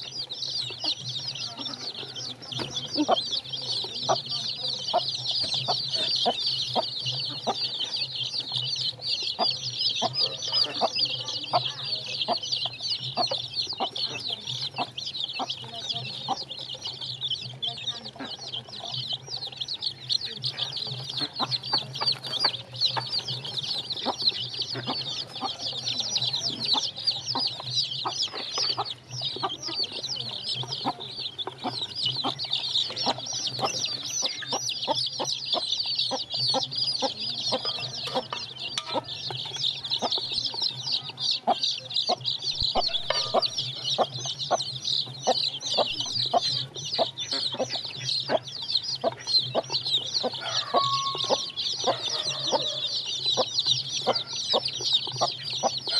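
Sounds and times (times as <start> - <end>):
chicks peeping: 0.0 - 55.9
beaks pecking at trough: 0.5 - 40.9.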